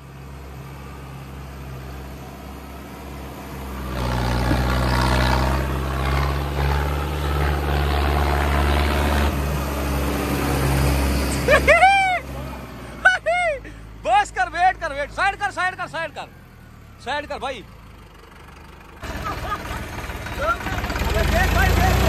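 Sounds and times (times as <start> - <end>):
tractor diesel engine: 0.0 - 22.0
spinning tyres throwing dirt: 3.9 - 9.9.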